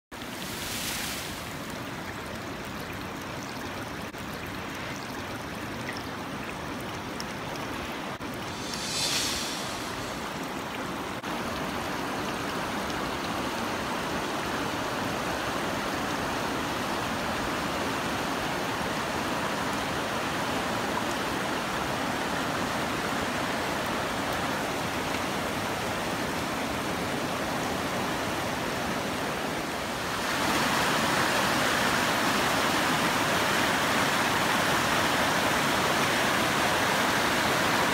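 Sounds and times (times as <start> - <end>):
floodwater rushing: 0.1 - 37.9
brief hiss: 0.3 - 1.6, 8.2 - 11.2.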